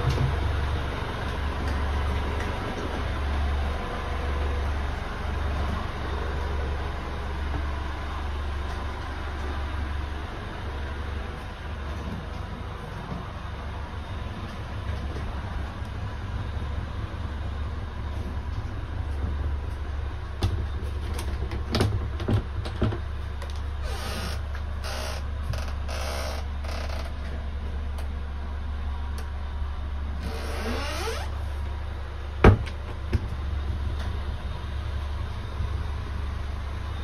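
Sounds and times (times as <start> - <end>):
steady low hum: 0.0 - 37.0
door creaking: 23.8 - 27.2, 30.2 - 31.3.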